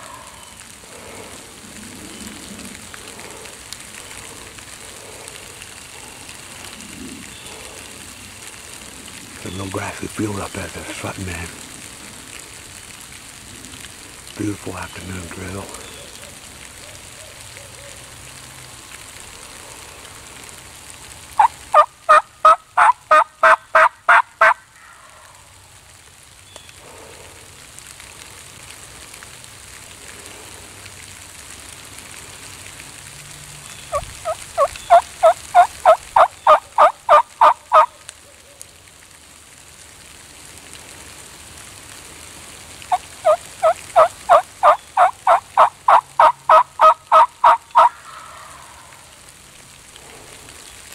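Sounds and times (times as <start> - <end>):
turkey yelping: 21.4 - 24.6, 33.9 - 37.9, 42.9 - 48.4.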